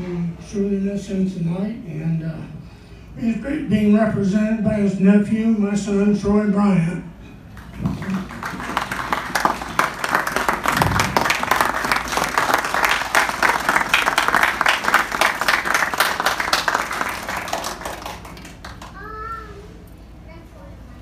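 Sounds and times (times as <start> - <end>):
audience applauding: 7.6 - 19.0.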